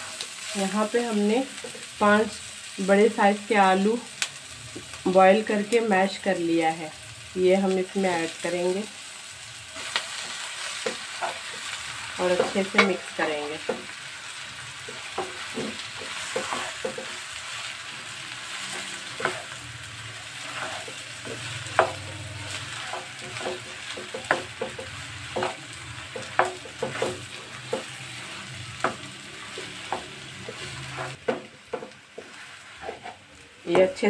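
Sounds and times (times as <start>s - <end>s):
food sizzling in a wok: 0.0s - 34.0s
spatula scraping a pan: 9.7s - 33.9s.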